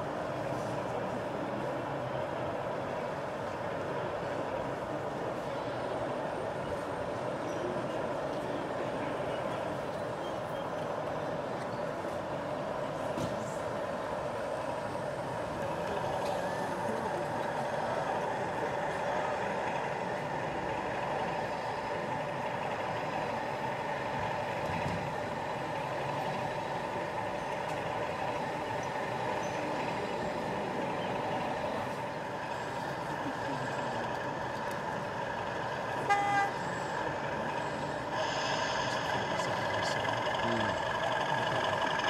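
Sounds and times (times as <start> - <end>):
model diesel engine running: 13.6 - 42.0
short horn toot: 36.0 - 36.6.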